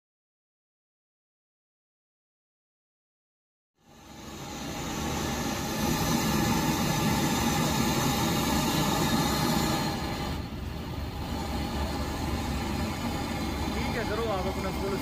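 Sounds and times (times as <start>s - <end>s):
gas torch flame hissing: 3.8s - 15.0s.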